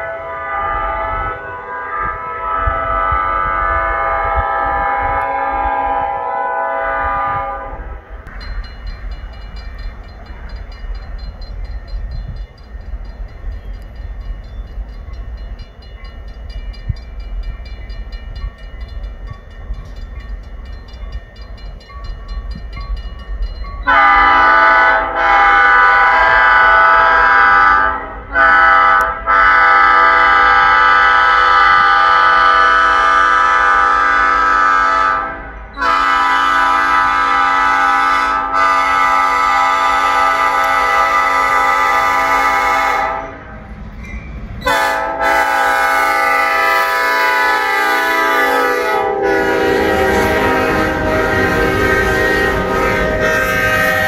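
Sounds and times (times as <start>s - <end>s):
locomotive air horn blasts: 0.0s - 8.1s, 23.9s - 43.5s, 44.6s - 54.0s
diesel locomotive rumble: 0.0s - 54.0s
crossing warning bells ringing: 8.2s - 54.0s.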